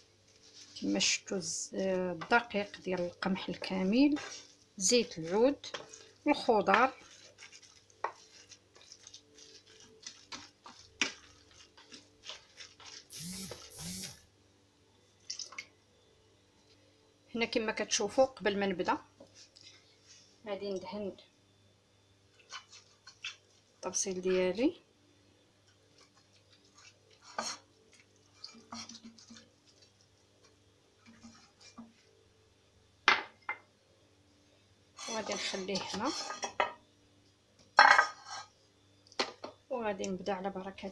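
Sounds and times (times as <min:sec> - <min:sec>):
pastry brush brushing glass dish: 0:00.3 - 0:14.1
wooden spoon scraping frying pan: 0:00.3 - 0:14.1, 0:22.4 - 0:23.4, 0:26.6 - 0:27.7, 0:28.3 - 0:29.8, 0:31.0 - 0:32.0, 0:35.0 - 0:36.6.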